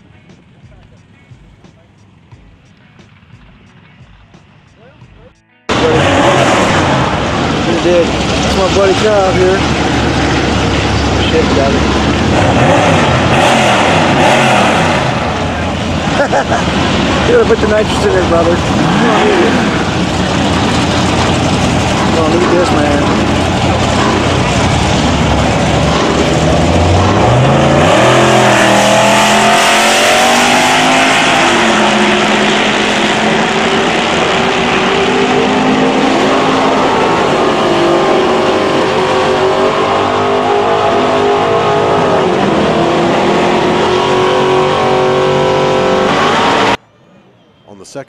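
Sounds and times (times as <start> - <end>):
drag racing engines at full throttle: 5.6 - 47.0.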